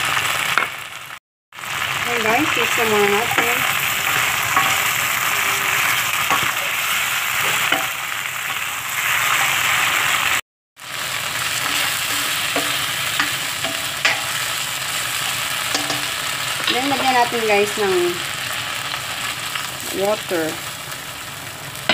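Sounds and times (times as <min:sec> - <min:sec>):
vegetables sizzling in oil: 0:00.0 - 0:21.9
spatula clicking and scraping: 0:11.6 - 0:14.3.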